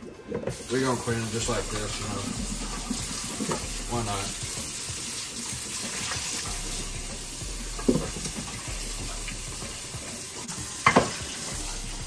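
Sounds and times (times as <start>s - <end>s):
faucet running into a pot: 0.5s - 12.0s
knock against a pot: 10.8s - 11.2s.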